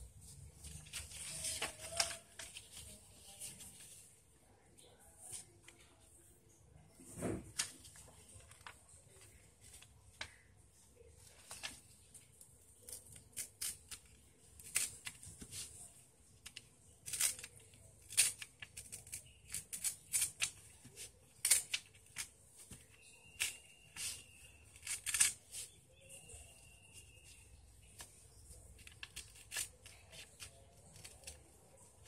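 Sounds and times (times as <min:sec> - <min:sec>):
paper folding and rustling: 0:00.0 - 0:04.2, 0:07.0 - 0:32.0
faint high tone: 0:25.8 - 0:27.7.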